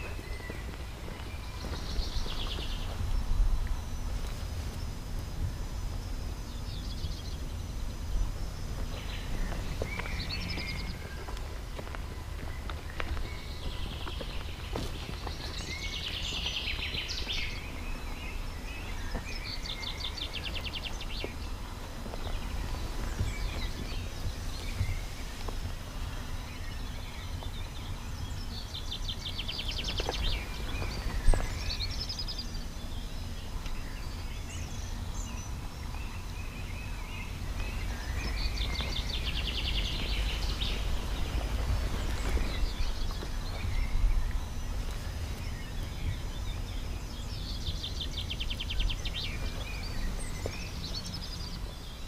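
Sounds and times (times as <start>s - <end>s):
songbirds singing: 0.0s - 52.0s
steady low rumble: 0.0s - 52.0s.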